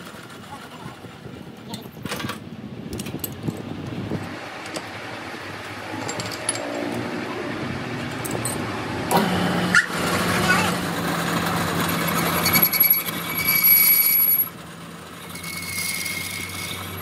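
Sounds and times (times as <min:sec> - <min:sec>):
workshop hum: 0:00.0 - 0:17.0
metallic clinks and rattles: 0:01.7 - 0:03.7, 0:05.9 - 0:07.0.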